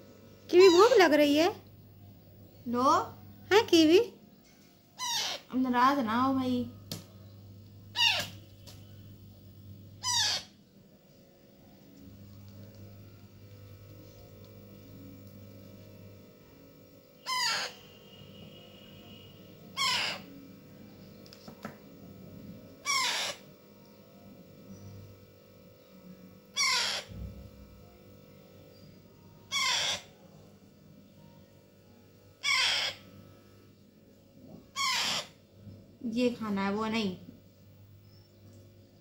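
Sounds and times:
parrot chick squawking: 0:00.6 - 0:01.0, 0:05.0 - 0:05.5, 0:07.9 - 0:08.4, 0:10.0 - 0:10.5, 0:17.2 - 0:17.8, 0:19.8 - 0:20.3, 0:22.8 - 0:23.4, 0:26.5 - 0:27.1, 0:29.5 - 0:30.1, 0:32.4 - 0:33.0, 0:34.7 - 0:35.4.

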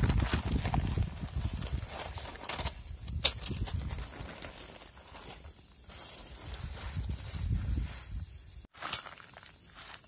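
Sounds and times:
plastic tarp rustling: 0:00.0 - 0:07.8
metal tent pegs clinking: 0:00.1 - 0:05.5, 0:08.8 - 0:09.5.

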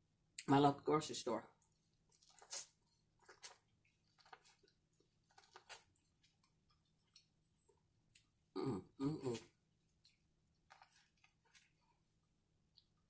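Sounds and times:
chewing corn on the cob: 0:01.6 - 0:08.3, 0:09.3 - 0:13.0.

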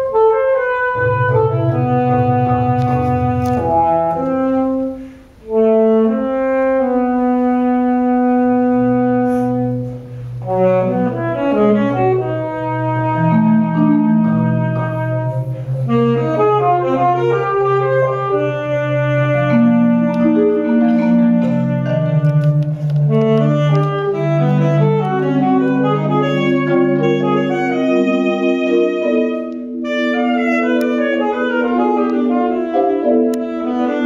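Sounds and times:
saxophone melody: 0:00.0 - 0:34.0
marimba rolls: 0:00.9 - 0:04.9.

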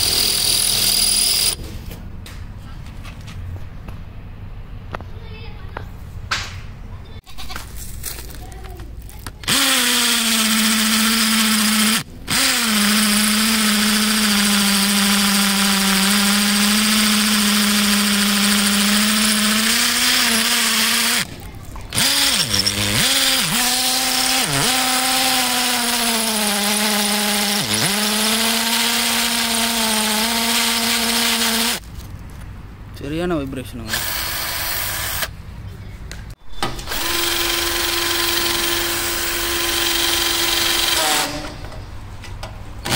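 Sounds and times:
cordless drill boring into stone: 0:09.4 - 0:21.3, 0:21.9 - 0:31.8, 0:33.9 - 0:35.3, 0:36.9 - 0:41.3.

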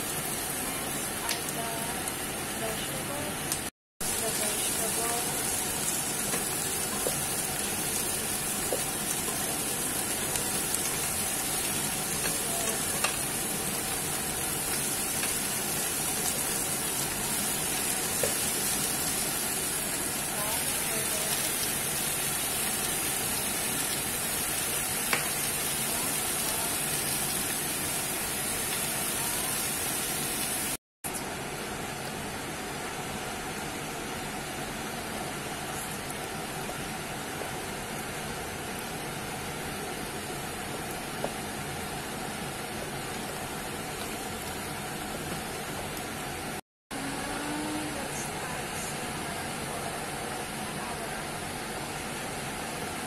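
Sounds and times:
vegetables sizzling in a pot: 0:00.0 - 0:30.8.

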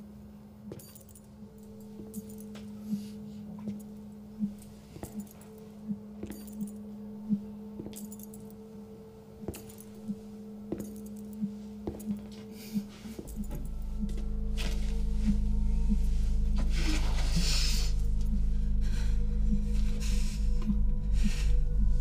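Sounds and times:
sharp ringing clicks and clinks: 0:00.7 - 0:02.5, 0:06.2 - 0:06.8.

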